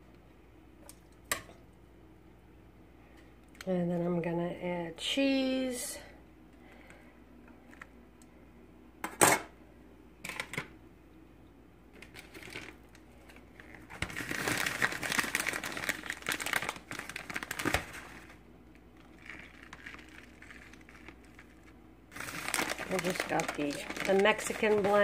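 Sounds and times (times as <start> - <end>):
plastic bag crinkling: 12.0 - 25.0.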